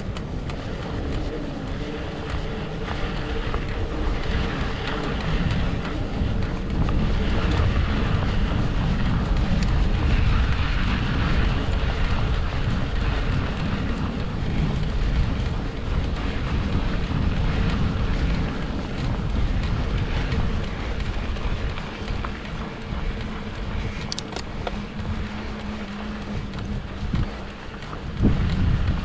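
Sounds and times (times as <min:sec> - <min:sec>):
bike rumbling on dirt trail: 0:00.0 - 0:29.0
wind buffeting microphone: 0:00.0 - 0:29.0.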